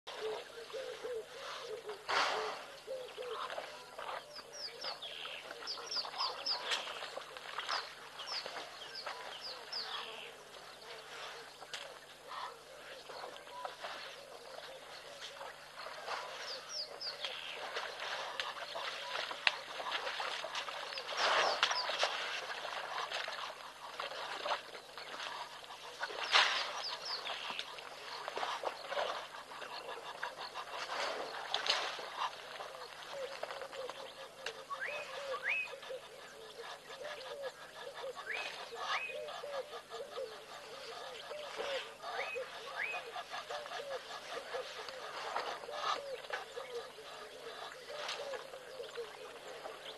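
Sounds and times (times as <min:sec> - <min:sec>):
birds chirping: 0:00.1 - 0:49.9
elephants sloshing in mud: 0:00.2 - 0:35.7
mud splash: 0:02.0 - 0:10.1, 0:15.2 - 0:35.7.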